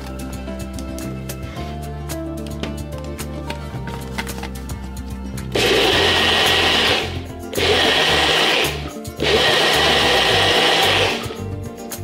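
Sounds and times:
blender chopping: 0:05.6 - 0:11.4.

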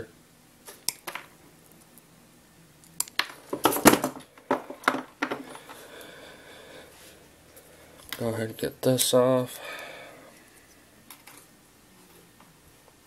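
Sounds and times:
handling tool and wires: 0:03.0 - 0:05.8.

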